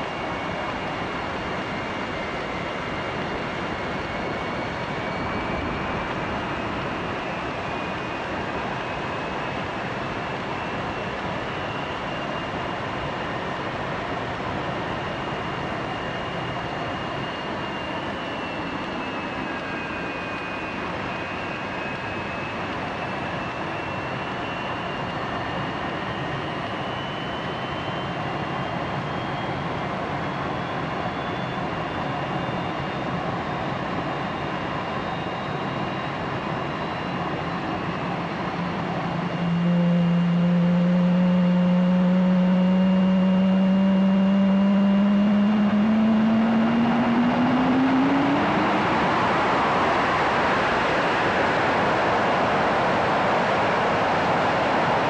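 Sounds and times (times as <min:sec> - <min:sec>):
jet engine rushing with whine: 0:00.0 - 0:55.0
broad rushing noise: 0:38.0 - 0:55.0.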